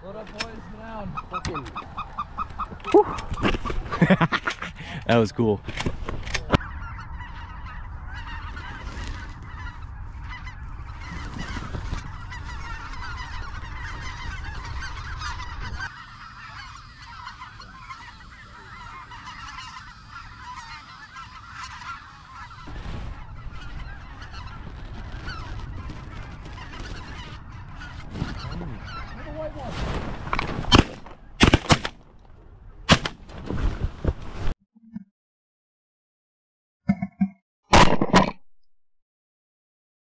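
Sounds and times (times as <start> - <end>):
geese honking: 0.1 - 3.8, 6.5 - 31.7.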